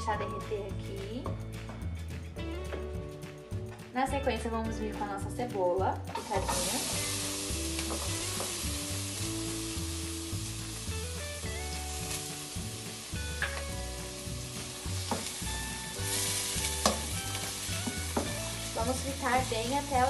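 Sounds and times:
onion sizzling in hot fat: 6.2 - 20.0.

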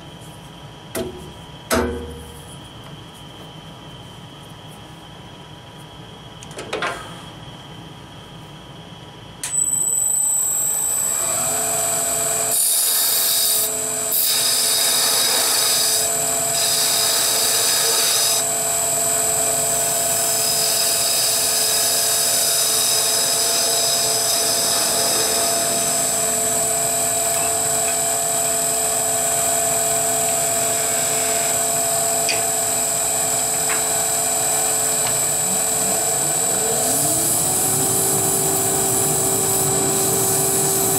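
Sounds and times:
wood lathe whining: 9.8 - 40.9
turning tool cutting wood: 12.5 - 18.4.

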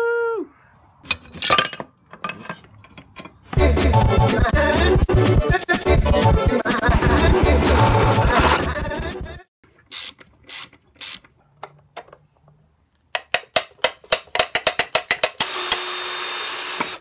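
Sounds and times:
ratchet wrench clicking: 9.9 - 11.3
cordless drill boring into wood: 15.4 - 17.0.

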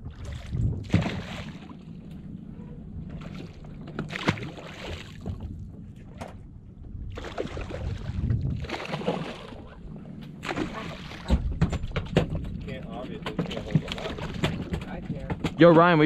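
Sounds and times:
boat rumble: 0.0 - 16.0
fish thrashing and splashing: 3.1 - 5.4, 7.2 - 9.8, 10.4 - 11.5.

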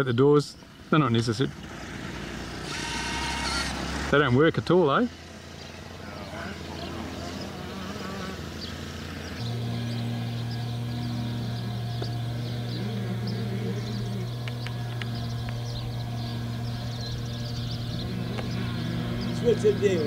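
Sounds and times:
low mechanical hum: 2.2 - 4.1, 5.0 - 20.0
sharp clicks: 14.4 - 15.7.

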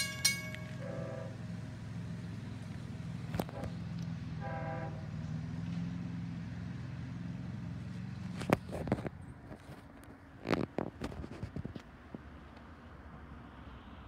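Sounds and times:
train horn blast: 0.0 - 1.8, 3.4 - 5.2
train rumble: 0.0 - 6.0.

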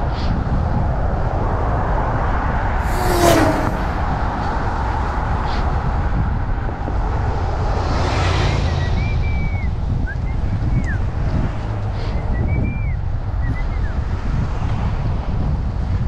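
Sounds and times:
wind rushing over microphone: 0.0 - 16.0
wind whoosh: 2.7 - 5.4.

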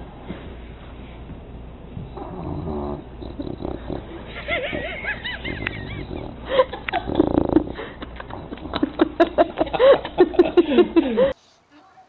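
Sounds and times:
dog whining in sleep: 2.0 - 4.2, 5.4 - 6.4, 7.1 - 7.7.

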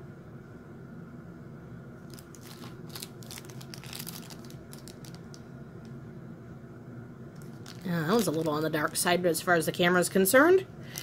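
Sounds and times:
low steady hum: 0.0 - 11.0
plastic bag crinkling: 2.0 - 5.4, 7.4 - 9.2.

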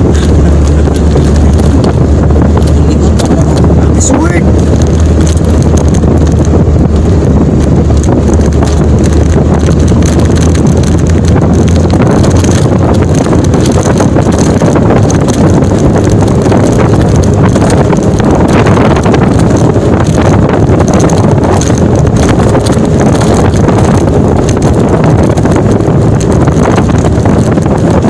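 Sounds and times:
low engine drone: 0.0 - 28.0
road and wind noise: 0.0 - 28.0.

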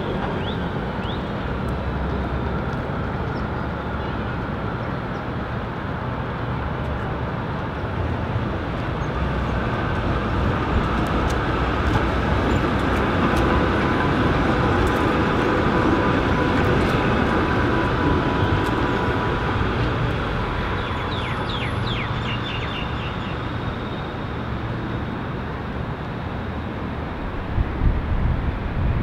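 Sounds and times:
tram rumbling past: 0.0 - 29.0
bird chirping: 20.7 - 23.6.

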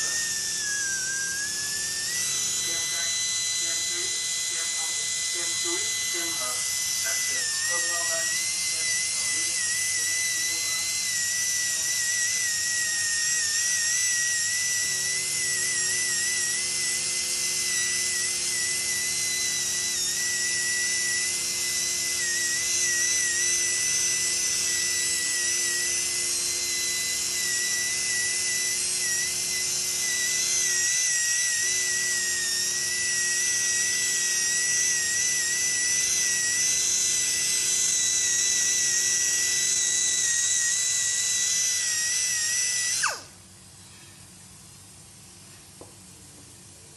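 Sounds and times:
polishing handpiece whining: 0.0 - 43.5.

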